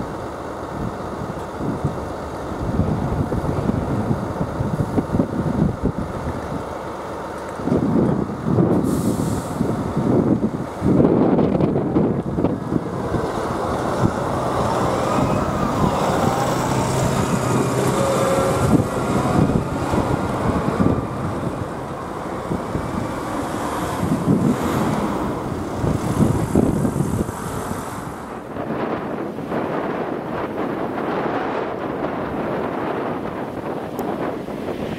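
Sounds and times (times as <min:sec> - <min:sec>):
tractor diesel engine: 0:00.0 - 0:34.9
cars driving past: 0:08.8 - 0:30.1.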